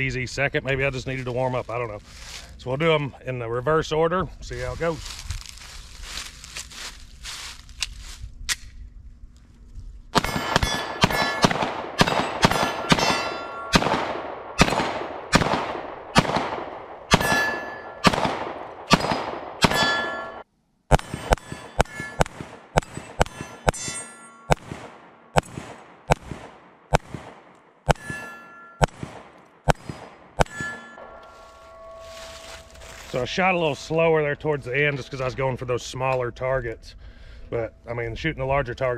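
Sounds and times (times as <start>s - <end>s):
steel plate clang: 10.2s - 13.8s, 17.1s - 18.1s, 18.9s - 24.7s, 27.9s - 29.1s, 29.7s - 33.2s
pistol shots: 10.2s - 30.8s.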